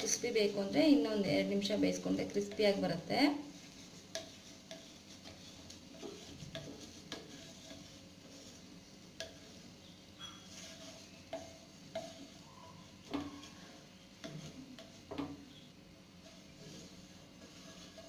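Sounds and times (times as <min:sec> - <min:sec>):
faint sizzle of frying: 0:00.0 - 0:18.0
wooden spatula scraping and tapping: 0:00.0 - 0:18.0.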